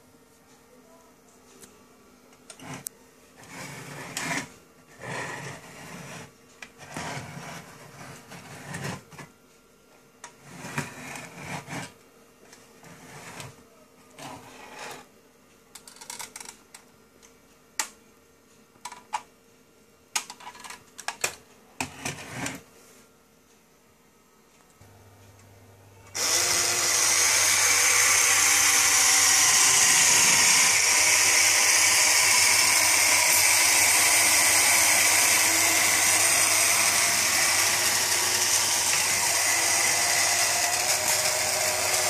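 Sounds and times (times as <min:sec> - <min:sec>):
toy motor whirring and rattling: 0:02.5 - 0:09.1, 0:10.4 - 0:12.0, 0:26.2 - 0:42.0.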